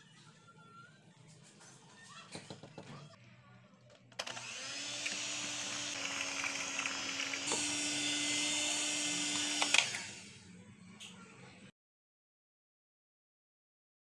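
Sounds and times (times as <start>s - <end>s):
electric hand mixer humming: 4.2s - 10.4s.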